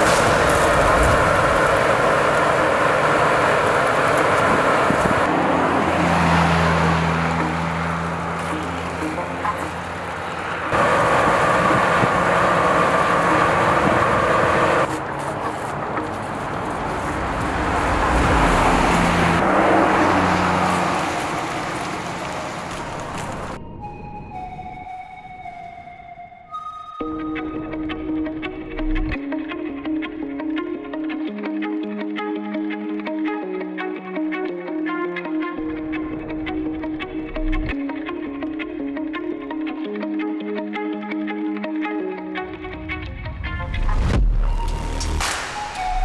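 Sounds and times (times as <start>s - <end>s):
pickup truck engine driving: 0.0s - 23.6s
tyre and road noise: 0.0s - 23.8s.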